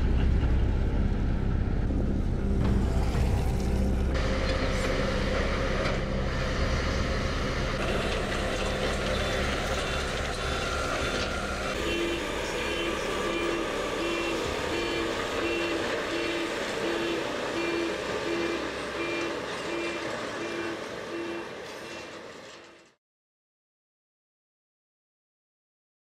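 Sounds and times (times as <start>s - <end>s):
heavy machinery engine running: 0.0s - 23.0s
reversing alarm beeping: 8.4s - 22.1s.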